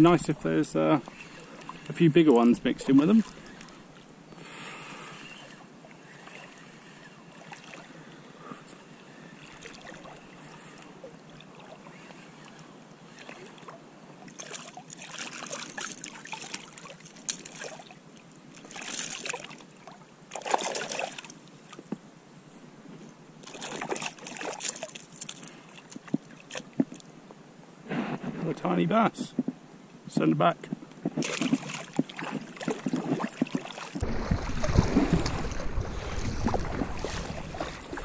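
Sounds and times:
water splashing and sloshing: 0.0s - 21.9s, 23.4s - 27.1s, 31.0s - 38.0s.

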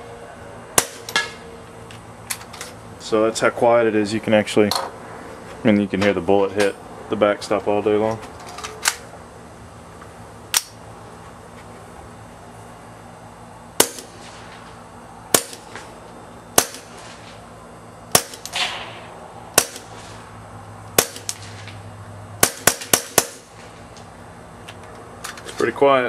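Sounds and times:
bullets hitting backstop: 0.8s - 1.4s, 13.8s - 14.7s, 15.3s - 15.9s, 16.5s - 17.4s, 18.1s - 20.2s, 21.0s - 21.8s, 22.4s - 23.8s
suppressed pistol shots: 13.8s - 14.4s, 16.6s - 17.1s, 18.1s - 19.0s, 19.6s - 20.0s, 21.0s - 21.7s, 22.4s - 23.5s.

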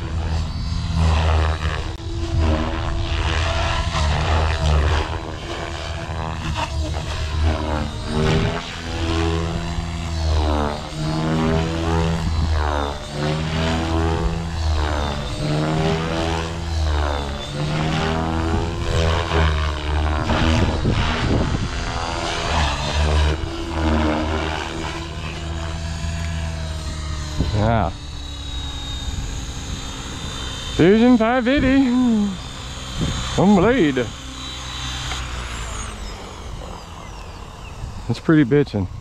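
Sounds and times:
rc helicopter rotor whine: 0.0s - 39.0s.

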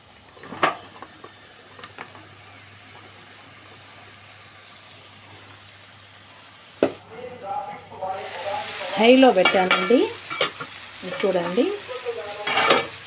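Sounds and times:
faint sizzle: 0.0s - 13.0s
vegetable pieces clattering into pan: 0.3s - 2.2s, 9.3s - 11.6s, 12.4s - 13.0s.

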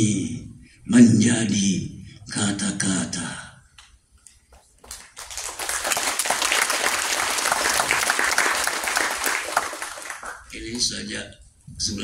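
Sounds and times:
audience applause: 4.8s - 10.6s.

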